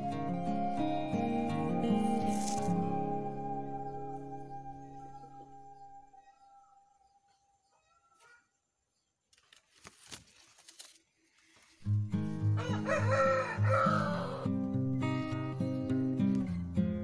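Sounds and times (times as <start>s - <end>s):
guitar music with low beat: 0.0s - 5.7s, 11.8s - 12.9s, 13.5s - 17.0s
rooster crowing: 12.6s - 14.6s.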